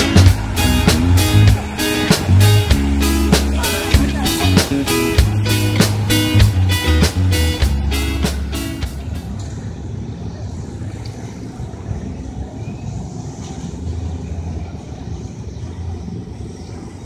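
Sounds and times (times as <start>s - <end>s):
background music: 0.0s - 9.4s
low outdoor rumble: 0.0s - 17.0s.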